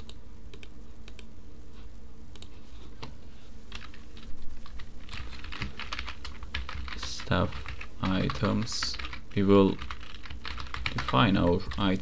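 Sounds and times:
mouse clicks: 0.0 - 1.3, 2.3 - 3.1
steady low hum: 0.0 - 12.0
computer keyboard clicks: 3.7 - 9.2, 9.8 - 12.0.

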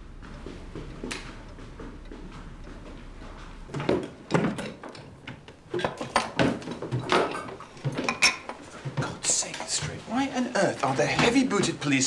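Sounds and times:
furniture and drawers knocking: 0.1 - 10.2.

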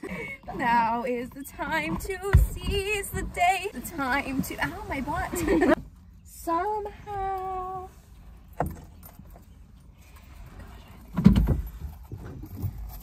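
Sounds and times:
rustling and knock on car seats: 1.6 - 5.8, 11.1 - 13.0.

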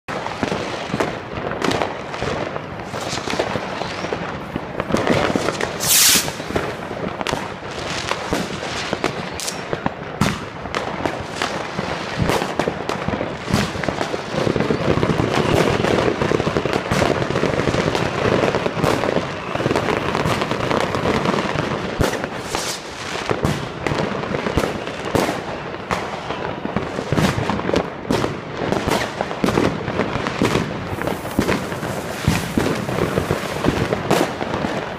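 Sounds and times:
fireworks banging and crackling: 0.1 - 34.9
short hiss: 5.8 - 6.6.

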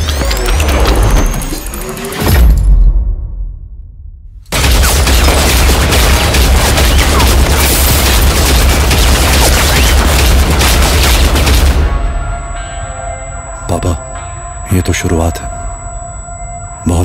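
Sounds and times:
rapid automatic gunfire: 4.5 - 11.8.

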